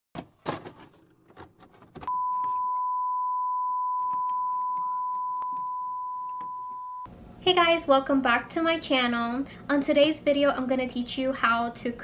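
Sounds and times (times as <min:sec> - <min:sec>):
high beep tone: 0:02.1 - 0:07.1.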